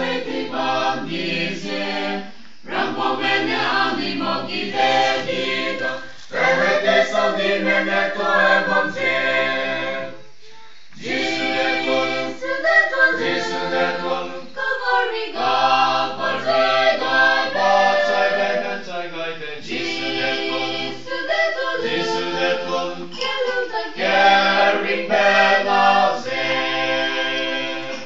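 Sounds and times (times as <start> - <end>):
group of people singing: 0.0 - 28.0.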